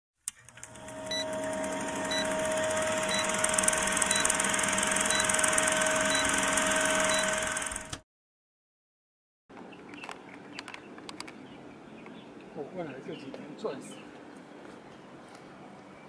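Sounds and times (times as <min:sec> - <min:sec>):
film projector whir: 0:00.3 - 0:08.0
short high blips: 0:01.1 - 0:08.0.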